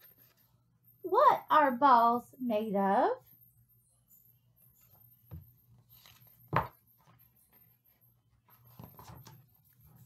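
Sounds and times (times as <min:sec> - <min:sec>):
paper rustling: 0:05.8 - 0:07.6.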